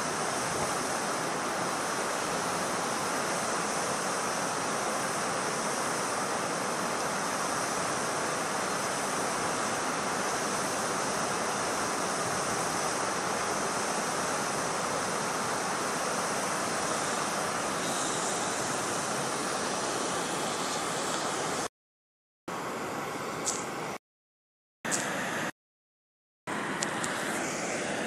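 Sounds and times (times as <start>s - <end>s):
running water rushing: 0.0s - 21.7s.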